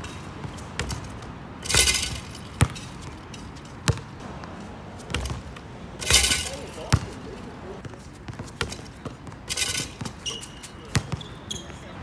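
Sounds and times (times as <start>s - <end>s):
basketball rattling rim and backboard: 0.0s - 11.3s
basketball bouncing on hard court: 0.4s - 1.1s, 1.7s - 3.2s, 3.8s - 7.1s, 7.8s - 11.8s.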